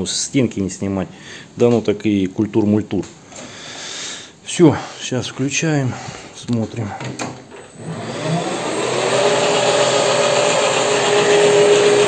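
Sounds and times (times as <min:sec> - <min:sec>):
mechanical hum: 0:07.4 - 0:12.0
lathe motor whining: 0:07.7 - 0:12.0.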